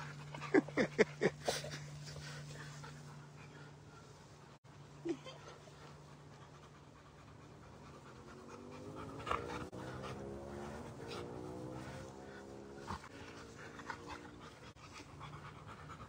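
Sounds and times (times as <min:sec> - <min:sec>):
dog panting: 0:05.4 - 0:16.0.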